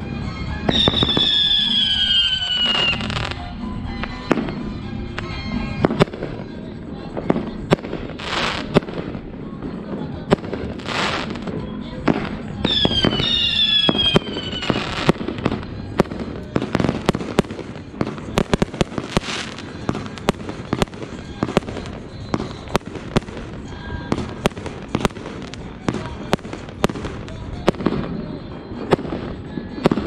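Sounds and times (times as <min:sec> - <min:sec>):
fireworks bursting with sharp bangs: 0:00.0 - 0:30.0
crackling hiss: 0:04.1 - 0:30.0.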